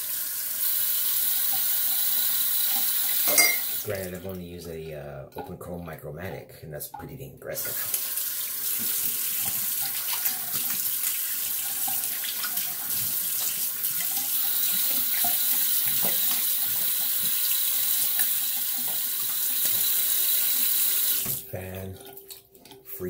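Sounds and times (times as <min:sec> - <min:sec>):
sink tap running: 0:00.0 - 0:04.0, 0:07.7 - 0:21.5.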